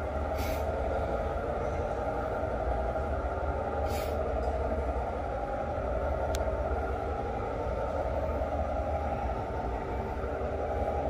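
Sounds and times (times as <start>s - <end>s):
model locomotive engine hum: 0.0s - 11.0s
short air hiss: 0.4s - 0.7s, 3.8s - 4.2s.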